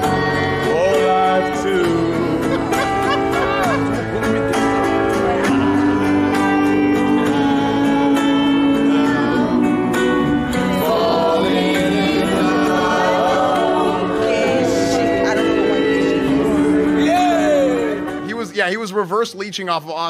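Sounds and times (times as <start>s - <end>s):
person singing into microphone: 0.0s - 3.8s, 5.1s - 18.3s
instrumental accompaniment: 0.0s - 18.7s
woman singing: 5.2s - 17.0s.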